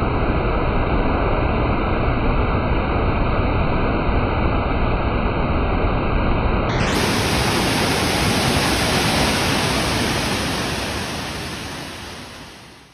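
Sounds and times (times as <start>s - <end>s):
waterfall rushing over boulders: 6.7s - 12.9s.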